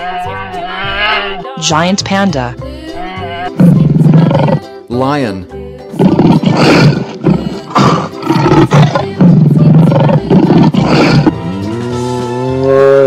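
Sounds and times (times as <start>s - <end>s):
lion roaring and growling: 3.6s - 4.6s, 5.9s - 13.0s.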